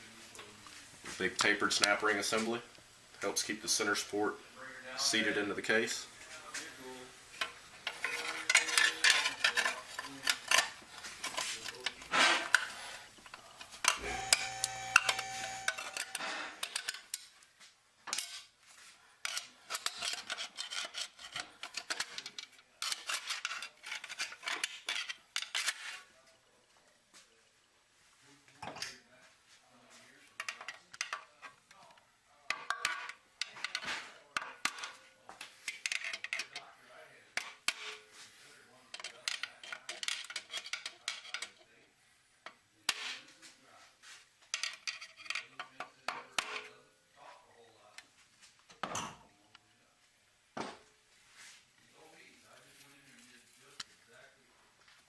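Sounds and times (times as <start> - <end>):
metallic clicks and scrapes: 7.4 - 17.3, 19.2 - 26.1, 32.5 - 36.7, 38.9 - 41.6, 44.0 - 46.8
tool scraping metal: 7.8 - 12.8, 13.8 - 16.8.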